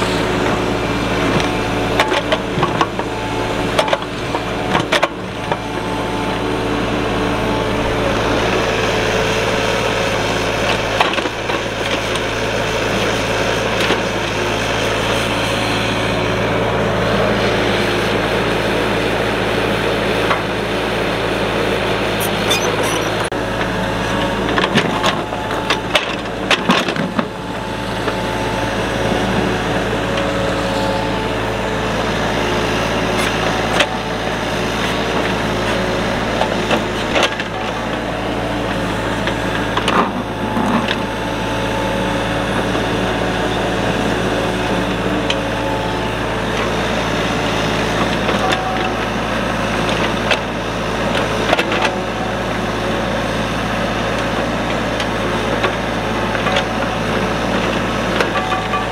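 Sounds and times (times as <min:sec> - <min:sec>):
diesel engine running under load: 0:00.0 - 0:58.9.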